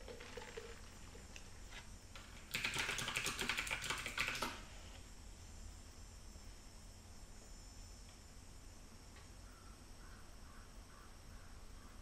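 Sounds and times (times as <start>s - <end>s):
typing on computer keyboard: 2.5s - 4.6s.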